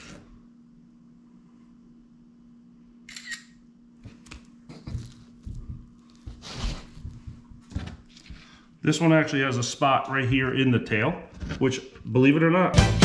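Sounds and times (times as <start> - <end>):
phone camera shutter: 3.1 - 3.6.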